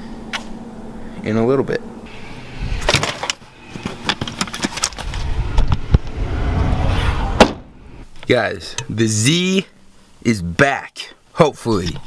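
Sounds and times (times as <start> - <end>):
handling clatter and clicks: 2.9 - 5.2
car panel shutting thud: 7.4 - 7.7.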